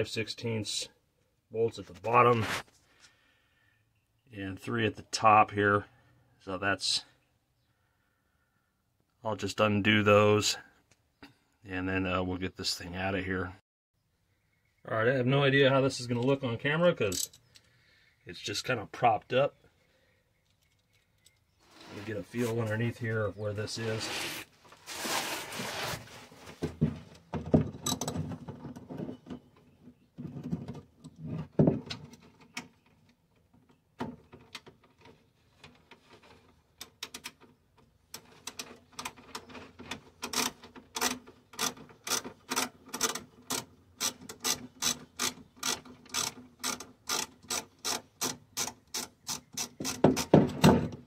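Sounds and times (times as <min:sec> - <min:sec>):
ratchet wrench clicking: 0:40.4 - 0:49.7.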